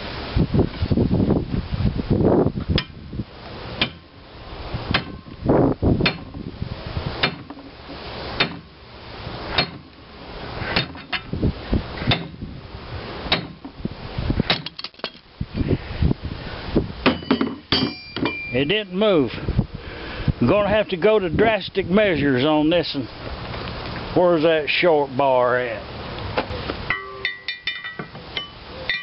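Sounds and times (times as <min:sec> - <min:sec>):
metal-on-metal hammer blows: 0:26.9 - 0:29.0.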